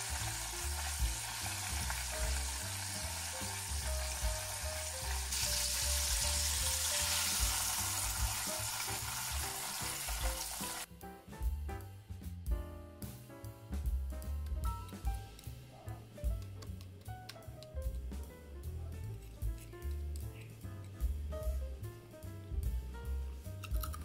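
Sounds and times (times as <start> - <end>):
chicken deep-frying in hot oil: 0.0 - 10.9
background music: 0.0 - 24.0.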